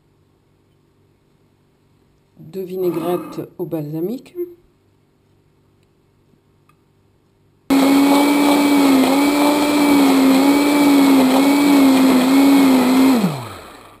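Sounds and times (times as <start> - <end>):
immersion blender whirring: 7.7 - 14.0.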